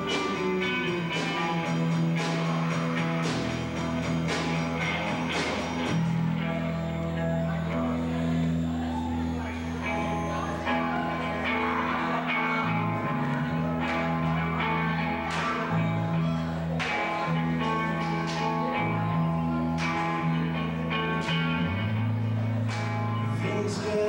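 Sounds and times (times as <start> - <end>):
bass notes: 0.0 - 24.0
drums: 0.0 - 24.0
electric guitar: 0.0 - 24.0.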